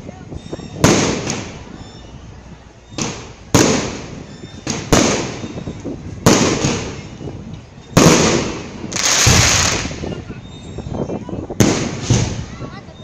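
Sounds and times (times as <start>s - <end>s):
fireworks bangs: 0.8s - 1.7s, 3.0s - 5.6s, 6.2s - 7.2s, 8.0s - 10.3s, 11.5s - 12.6s.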